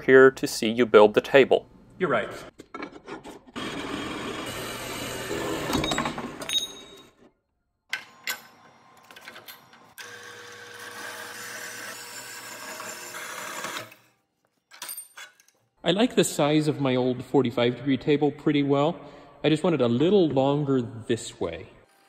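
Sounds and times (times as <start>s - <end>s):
bandsaw cutting steel: 3.6s - 5.8s, 10.0s - 14.2s.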